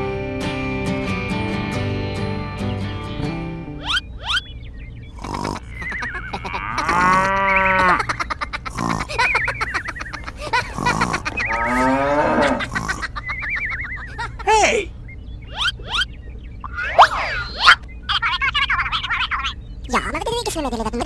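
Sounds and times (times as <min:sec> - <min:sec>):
cow mooing: 0:05.2 - 0:08.0, 0:11.4 - 0:12.8
warbling high whistles: 0:15.4 - 0:19.6.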